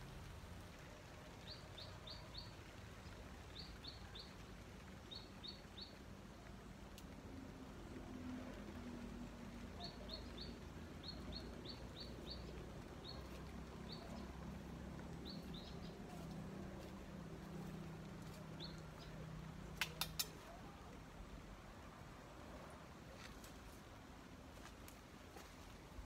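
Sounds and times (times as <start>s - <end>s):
faint low rumble: 0.0s - 26.0s
sharp clicks: 19.7s - 20.5s.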